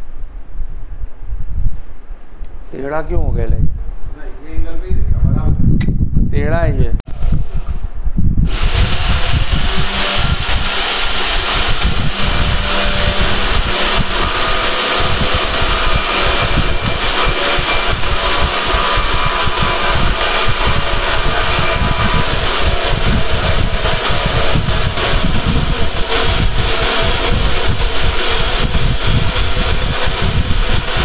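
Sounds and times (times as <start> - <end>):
band saw cutting steel pipe: 8.5 - 31.0.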